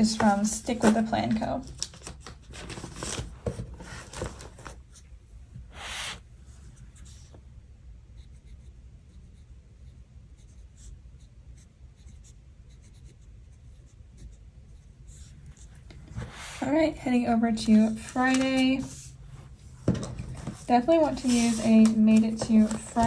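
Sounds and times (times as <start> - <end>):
paper rustling and clicks: 0.0 - 4.8, 17.6 - 19.0, 19.9 - 23.0
scratchy rub on paper: 8.2 - 16.9, 20.4 - 23.0
pen scratching on paper: 8.2 - 17.0, 20.4 - 23.0.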